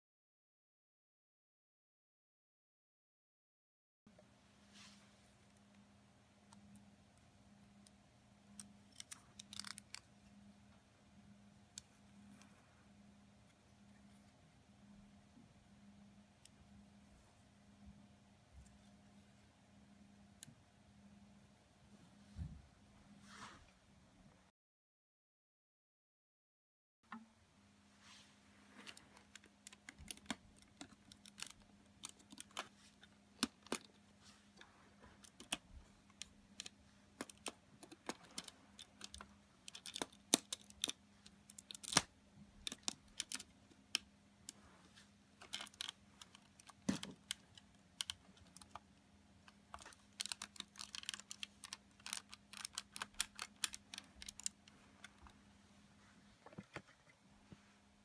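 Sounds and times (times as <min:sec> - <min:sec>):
faint steady hum: 0:04.1 - 0:24.5, 0:27.1 - 0:58.0
plastic pieces clicking together: 0:08.6 - 0:10.1, 0:28.9 - 0:34.0, 0:35.2 - 0:44.1, 0:45.4 - 0:48.9, 0:49.5 - 0:55.2.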